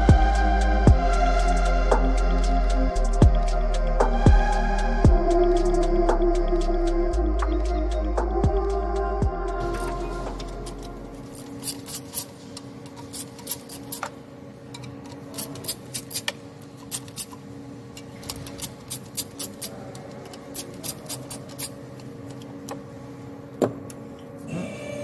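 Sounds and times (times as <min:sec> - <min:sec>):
faint background hum: 0:00.0 - 0:25.0
hand ratchet clicking: 0:09.7 - 0:12.3, 0:12.9 - 0:14.2, 0:14.8 - 0:17.4, 0:18.2 - 0:22.4.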